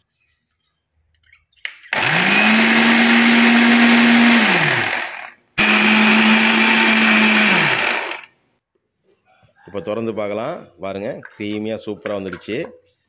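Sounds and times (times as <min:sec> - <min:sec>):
mixer grinder motor whining: 0:01.9 - 0:08.3.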